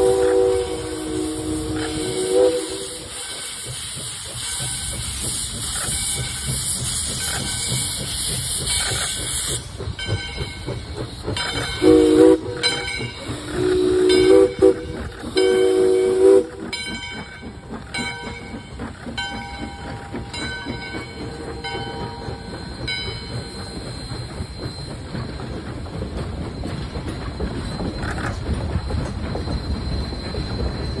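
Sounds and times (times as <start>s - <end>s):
steam whistle blasts: 0.0s - 3.6s, 11.6s - 16.7s
steam hissing: 0.0s - 31.0s
train rumbling past: 0.0s - 31.0s
wheels clicking over rail joints: 0.0s - 31.0s.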